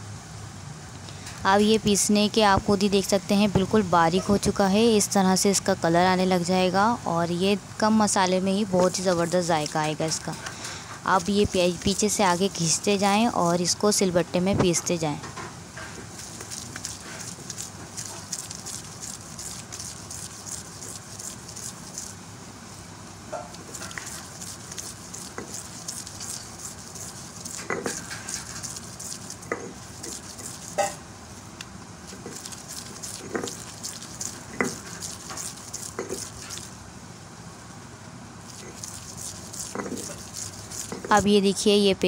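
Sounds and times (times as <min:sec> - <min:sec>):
stone roller scraping: 0:23.5 - 0:31.0, 0:32.1 - 0:36.6, 0:38.5 - 0:41.2.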